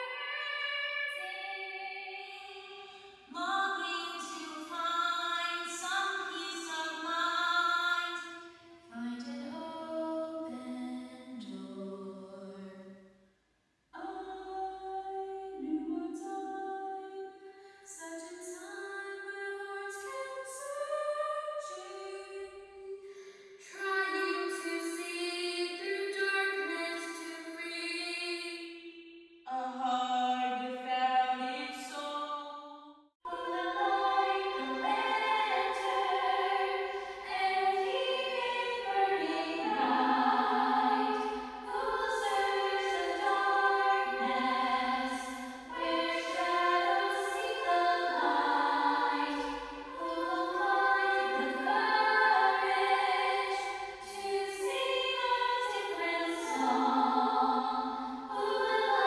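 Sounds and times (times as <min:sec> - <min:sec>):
girl singing unaccompanied: 0:33.3 - 0:57.6.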